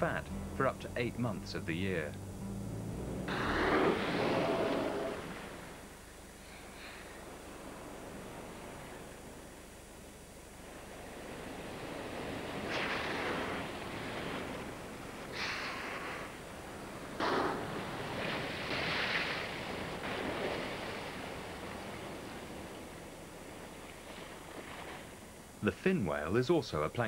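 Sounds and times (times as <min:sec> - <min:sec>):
waves washing: 0:03.0 - 0:26.4
whale blowing breath and spray: 0:15.3 - 0:16.4.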